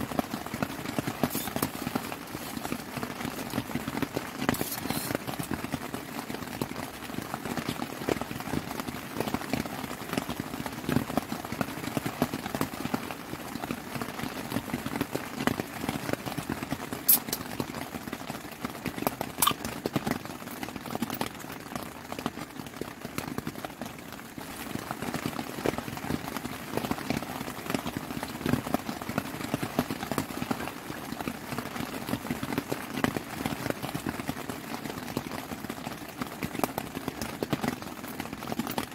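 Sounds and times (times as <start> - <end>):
heavy rain drumming on tent: 0.0 - 38.9.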